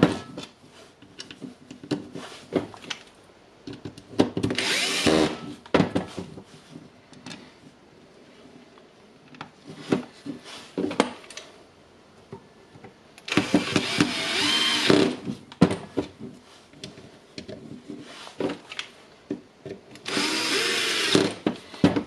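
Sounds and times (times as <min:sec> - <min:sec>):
cordless drill driving a screw: 0:04.6 - 0:05.4, 0:13.3 - 0:15.2, 0:20.0 - 0:21.4.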